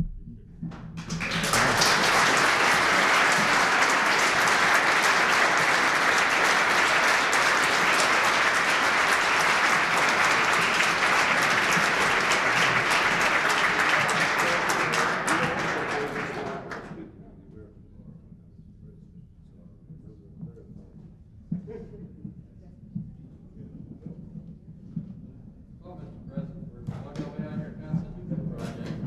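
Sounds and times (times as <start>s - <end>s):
audience applauding: 1.0s - 17.0s
voices: 1.1s - 17.0s.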